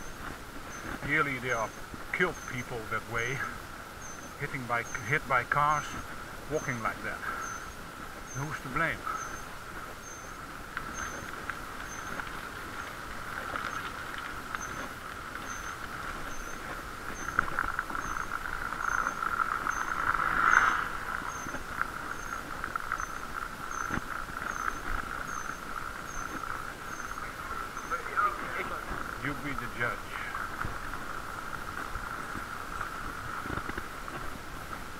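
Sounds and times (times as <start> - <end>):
muffled bicycle rushing hiss: 0.0 - 34.9
faint high chirp: 14.6 - 28.6.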